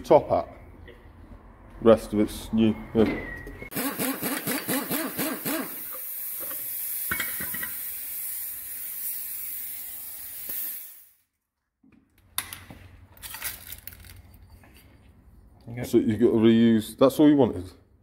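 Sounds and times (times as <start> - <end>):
impact wrench hammering: 3.7 - 7.8
compressed air hissing: 3.8 - 11.2.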